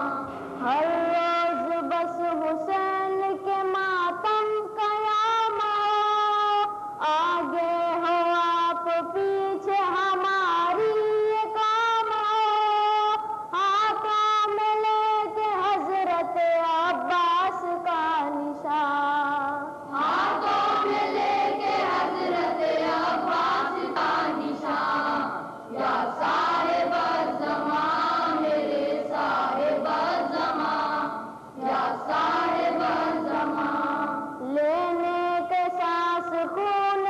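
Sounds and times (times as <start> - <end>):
boys' choir singing: 19.8 - 35.5.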